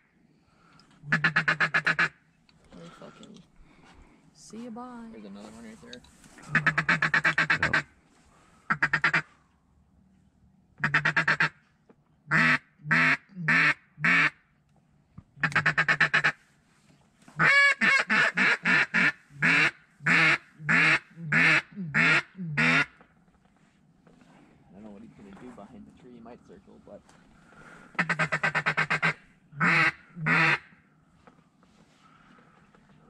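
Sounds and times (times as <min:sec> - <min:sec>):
duck call chatter and quacks: 0:01.0 - 0:02.2, 0:06.5 - 0:07.9, 0:08.7 - 0:09.3, 0:10.8 - 0:11.6, 0:12.3 - 0:14.4, 0:15.4 - 0:16.4, 0:17.4 - 0:23.0, 0:28.0 - 0:30.8.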